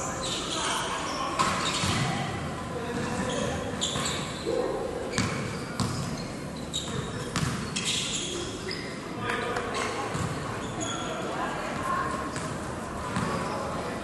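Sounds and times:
basketball bouncing: 0:06.9 - 0:07.6, 0:10.1 - 0:10.4.

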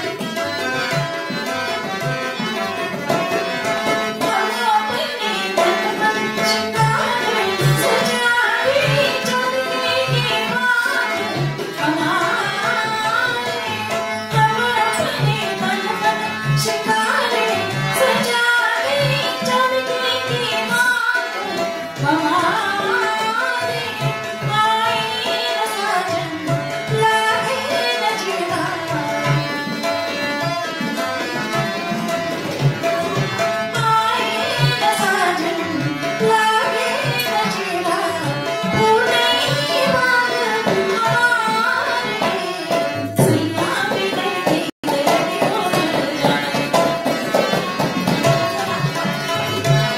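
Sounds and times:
sarangi melody: 0:00.0 - 0:49.9
tabla beat: 0:00.0 - 0:49.9.

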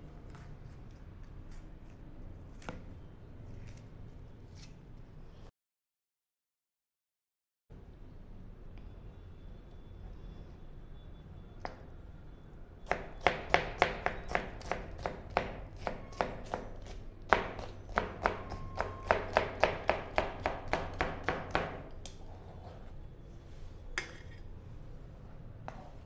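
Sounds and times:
knife chopping on plastic board: 0:12.9 - 0:21.9.

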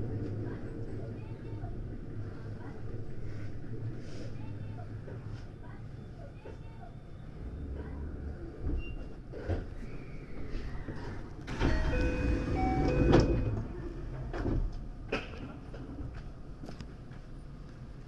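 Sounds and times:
low hum of standing train: 0:00.0 - 0:18.0
sliding train doors moving: 0:10.9 - 0:16.2.

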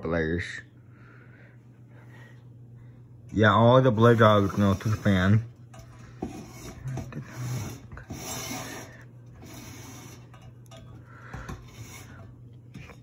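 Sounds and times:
steady low hum: 0:00.0 - 0:13.0
rubbing and scraping handling noise: 0:03.9 - 0:13.0.

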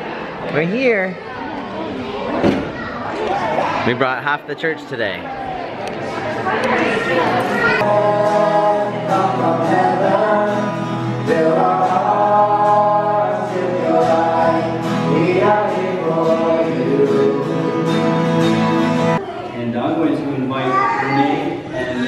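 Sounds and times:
congregation singing: 0:05.8 - 0:19.2
strummed acoustic guitar: 0:07.2 - 0:19.2
man singing: 0:07.8 - 0:19.2.

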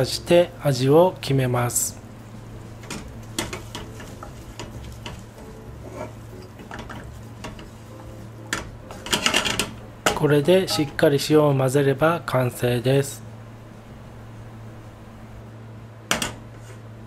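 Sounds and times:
low hum: 0:00.0 - 0:17.0
spatula scraping saucepan: 0:02.8 - 0:09.8.

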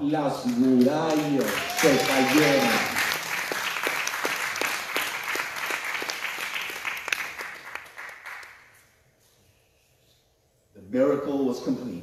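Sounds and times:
congregation applauding: 0:00.2 - 0:08.8.

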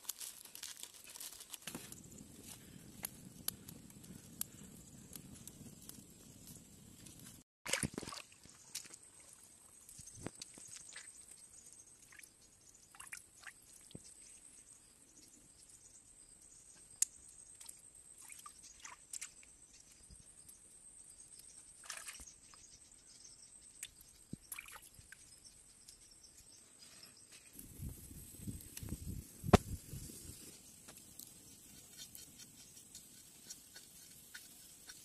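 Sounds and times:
blade clicking and scraping fish: 0:31.2 - 0:35.0.

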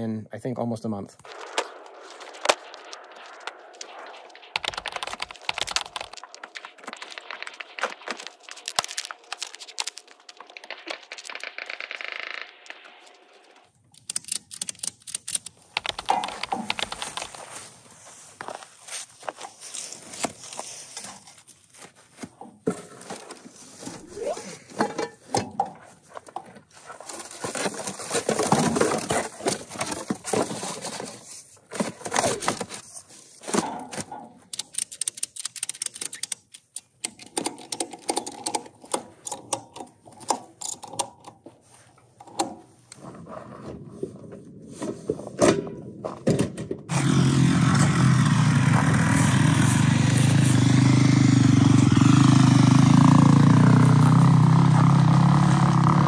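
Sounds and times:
foam and trash rustling: 0:26.6 - 0:34.0
engine starting and running: 0:46.9 - 0:56.0.

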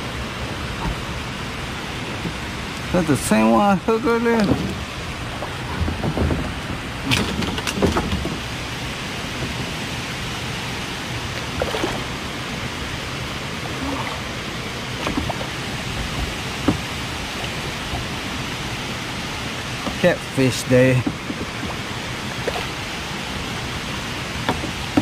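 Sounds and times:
fishing tackle clicks and knocks: 0:05.4 - 0:08.4.

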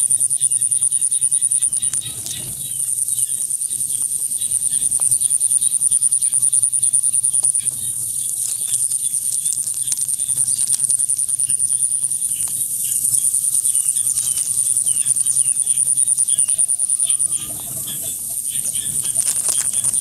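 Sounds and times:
insects trilling: 0:00.0 - 0:20.0
faint clicks: 0:04.0 - 0:20.0.

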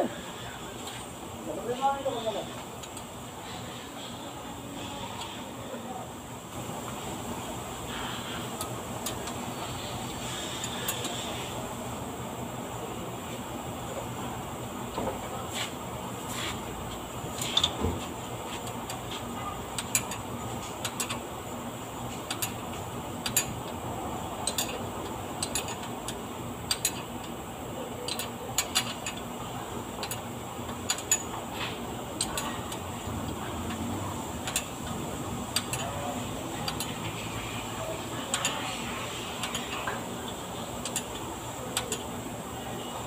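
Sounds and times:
steady low hum: 0:00.0 - 0:43.0
hand tools clicking on metal: 0:19.8 - 0:21.2, 0:22.2 - 0:22.6, 0:23.2 - 0:23.8, 0:24.4 - 0:27.4, 0:28.0 - 0:29.3, 0:30.0 - 0:31.4, 0:32.2 - 0:33.8, 0:34.4 - 0:34.7, 0:35.5 - 0:36.0, 0:36.6 - 0:37.2, 0:38.3 - 0:38.6, 0:39.4 - 0:40.0, 0:40.8 - 0:42.1.

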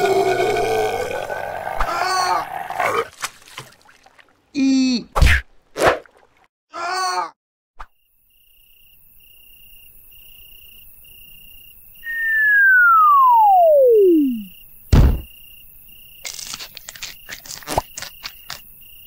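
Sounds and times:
crickets chirping: 0:08.0 - 0:19.0
descending whistle: 0:12.0 - 0:14.5
heavy thud: 0:14.9 - 0:15.3.

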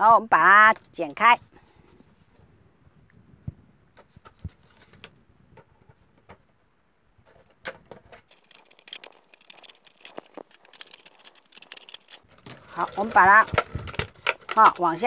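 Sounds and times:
scissors cutting plastic bottle: 0:08.3 - 0:15.0.

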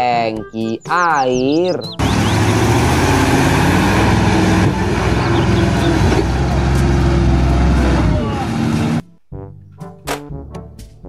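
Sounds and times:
truck engine droning: 0:00.9 - 0:09.1
wheels churning mud: 0:02.0 - 0:09.0.

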